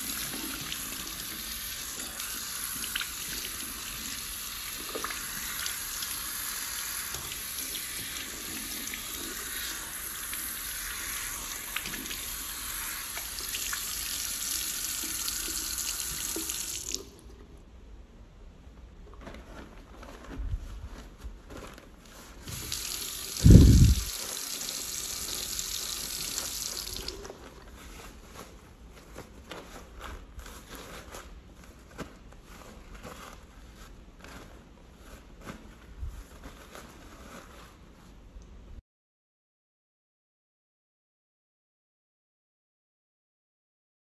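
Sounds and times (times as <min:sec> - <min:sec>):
sink faucet running: 0:00.0 - 0:17.2, 0:22.5 - 0:27.2
paper towel rustling: 0:18.4 - 0:38.8.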